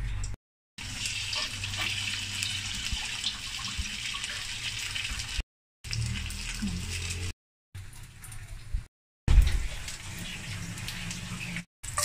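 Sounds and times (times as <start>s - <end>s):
patties sizzling in hot oil: 0.8s - 7.3s, 9.3s - 12.0s.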